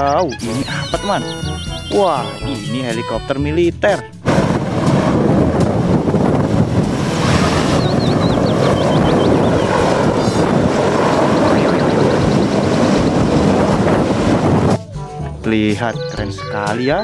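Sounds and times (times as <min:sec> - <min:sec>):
helicopter rotor and turbine roar: 0:00.6 - 0:02.6, 0:04.2 - 0:14.9.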